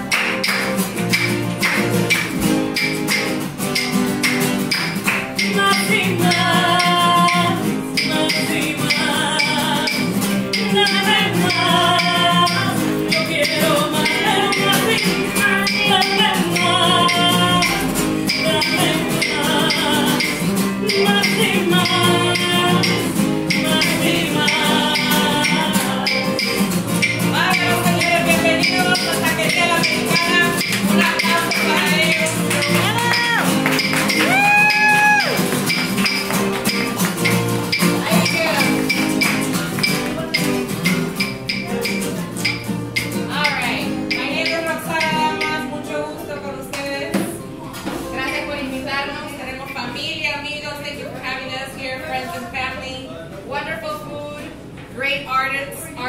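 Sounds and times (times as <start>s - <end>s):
rattling hand percussion: 0.0s - 45.7s
strummed acoustic guitar: 0.0s - 49.9s
woman singing: 5.4s - 35.4s, 38.0s - 39.4s, 43.3s - 47.4s.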